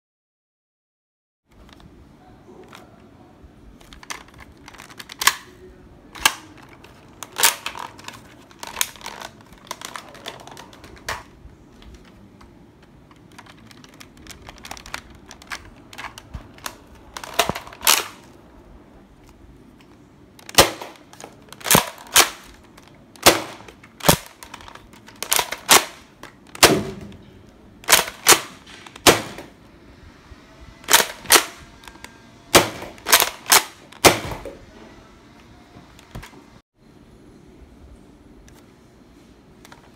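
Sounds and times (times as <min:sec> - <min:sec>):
toy blaster snapping shots: 0:20.4 - 0:27.2, 0:27.8 - 0:29.5, 0:30.9 - 0:34.5.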